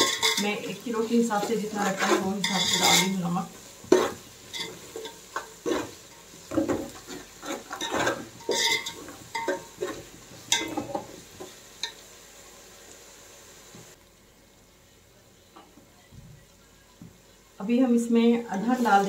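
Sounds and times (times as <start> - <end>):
metal spatula scraping a metal pot: 0.0 - 3.3, 3.9 - 11.0.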